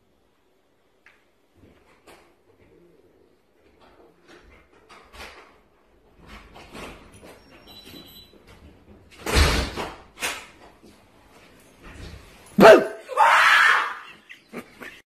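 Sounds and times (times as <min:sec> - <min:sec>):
loud scream: 0:12.6 - 0:14.2
person's startled cry: 0:12.6 - 0:14.2.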